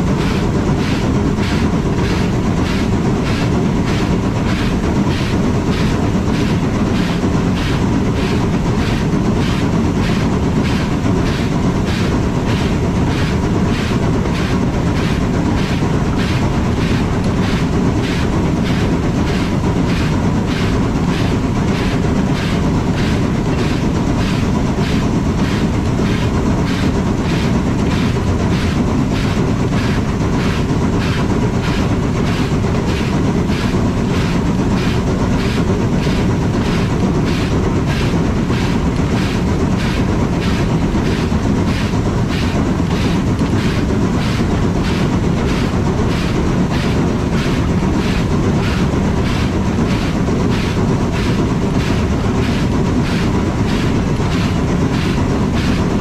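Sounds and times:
steam locomotive chuffing: 0:00.0 - 0:56.0.

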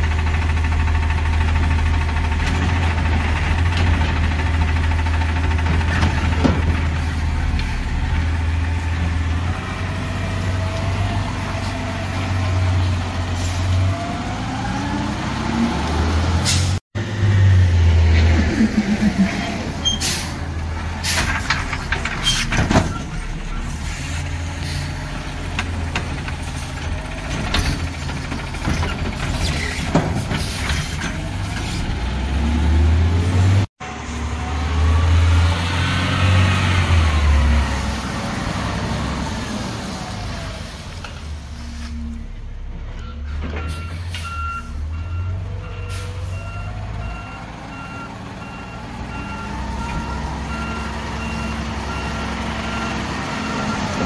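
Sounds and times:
diesel truck engine running: 0:00.0 - 0:54.0
reversing alarm beeping: 0:43.0 - 0:53.9.

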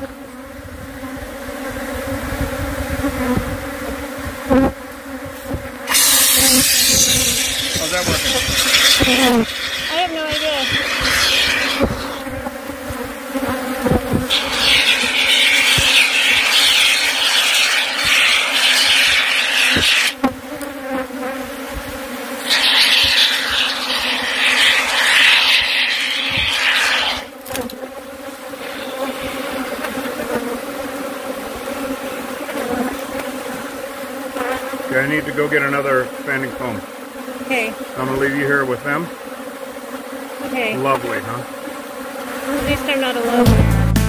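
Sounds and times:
bees buzzing: 0:00.0 - 0:44.0
spray foam can hissing: 0:05.9 - 0:12.3, 0:14.2 - 0:20.2, 0:22.4 - 0:27.4, 0:28.6 - 0:29.6.

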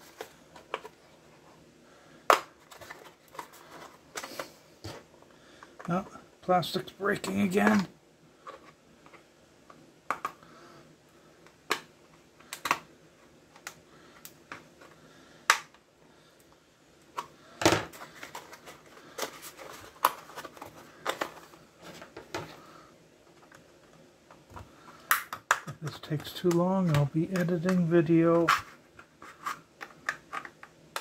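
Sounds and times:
plastic casing clicking and snapping: 0:25.1 - 0:27.8.

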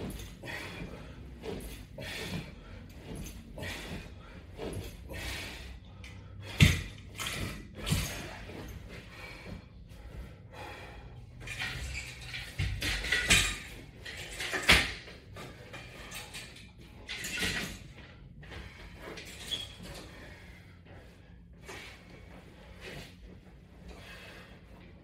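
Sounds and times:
exercise gear knocking and clattering: 0:00.0 - 0:05.2, 0:06.0 - 0:09.6, 0:11.3 - 0:20.2
metal chains and clips clinking: 0:11.4 - 0:17.9.

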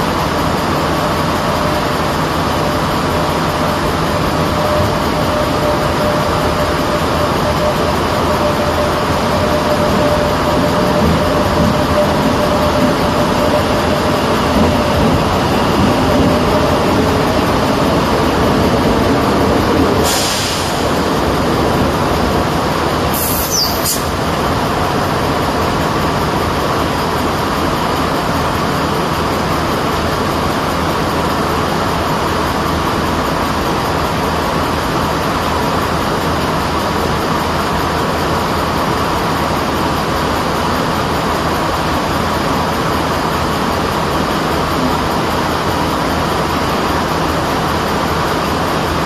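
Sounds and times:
diesel engines idling: 0:00.0 - 0:49.0
short air hisses: 0:20.0 - 0:21.0, 0:23.1 - 0:24.2.

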